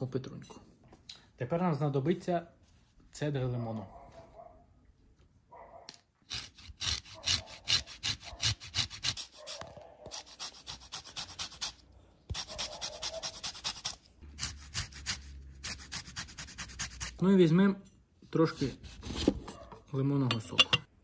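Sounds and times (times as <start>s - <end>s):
zesting on rasp grater: 10.1s - 17.2s.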